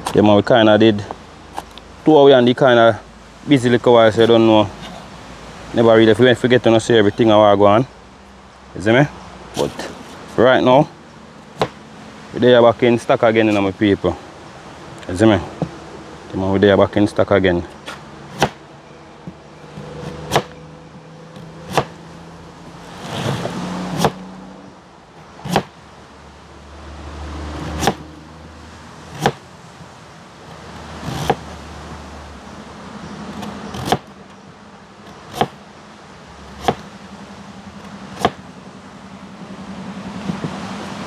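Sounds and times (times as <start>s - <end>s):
knife chopping on wooden board: 11.6s - 11.8s, 17.8s - 18.6s, 19.3s - 20.6s, 21.4s - 22.0s, 23.1s - 24.2s, 25.4s - 25.7s, 27.6s - 28.1s, 29.1s - 29.4s, 31.0s - 31.5s, 33.4s - 34.1s, 35.1s - 35.6s, 36.6s - 36.9s, 38.2s - 38.4s.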